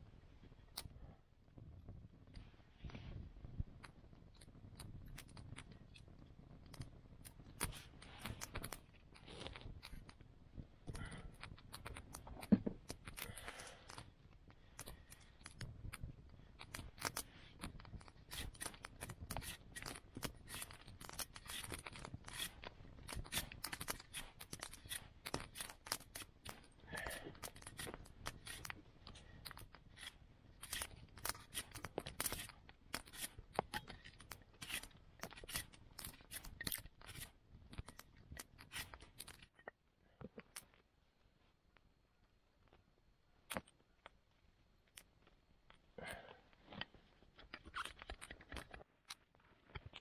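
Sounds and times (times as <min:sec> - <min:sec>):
knife carving wood: 0:03.8 - 0:39.6, 0:46.0 - 0:50.0.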